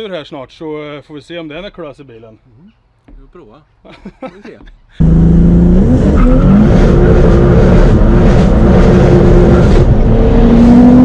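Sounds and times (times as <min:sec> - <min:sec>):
car engine accelerating hard: 0:05.0 - 0:11.0.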